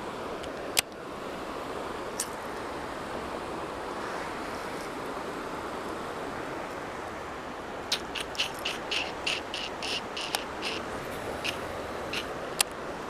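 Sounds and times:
river water rushing over rocks: 0.0s - 13.0s
sharp click: 7.9s - 10.8s.

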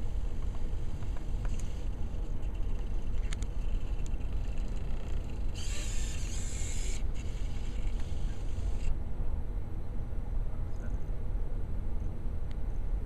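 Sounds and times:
faint mechanical clicks: 0.4s - 8.9s
servo motors whirring: 0.4s - 9.0s.

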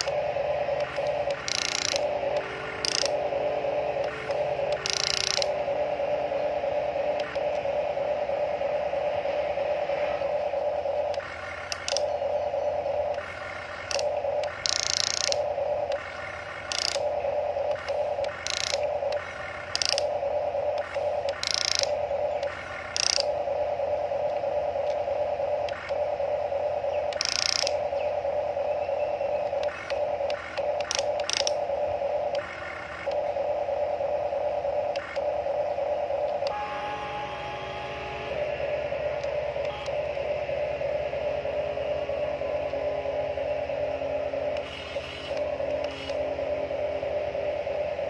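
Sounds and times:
toy excavator gear motors whining: 0.0s - 5.7s, 11.1s - 23.7s, 27.0s - 27.9s, 29.4s - 33.3s.

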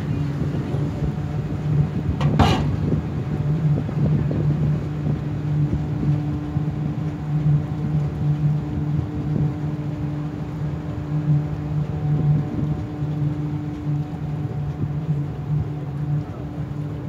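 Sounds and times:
ferry engine humming: 0.0s - 17.0s.

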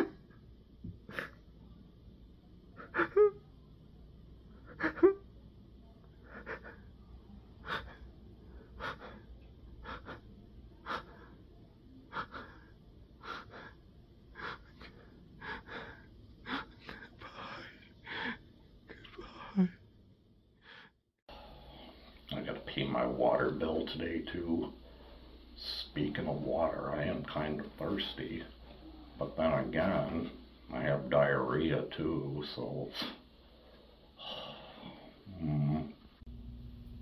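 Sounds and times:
man sobbing: 2.8s - 3.6s, 4.6s - 5.3s, 6.2s - 6.9s, 12.1s - 19.8s.

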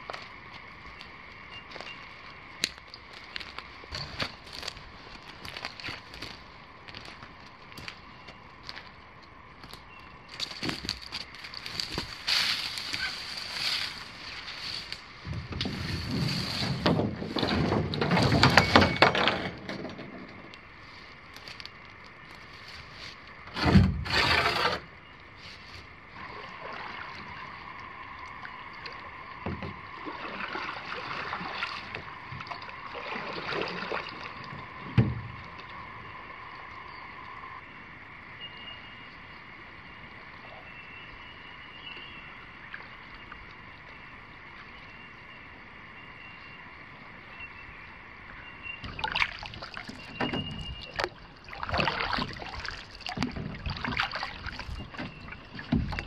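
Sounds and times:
rustling through grass and scrub: 10.3s - 18.7s
inflatable canoe handling: 10.4s - 20.6s, 48.9s - 56.0s
paddle strokes in water: 10.5s - 21.2s, 22.4s - 36.0s, 48.9s - 56.0s.

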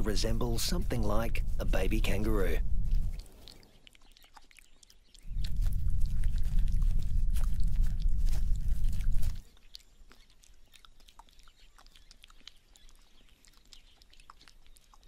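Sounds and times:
kangaroo licking wet clicks: 2.8s - 15.0s
low rumble: 5.3s - 9.4s.

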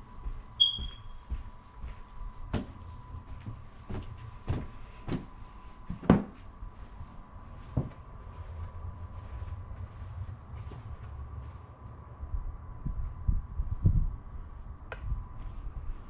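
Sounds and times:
footsteps on carpeted stairs: 0.0s - 11.7s
faint steady hum: 0.0s - 16.0s.

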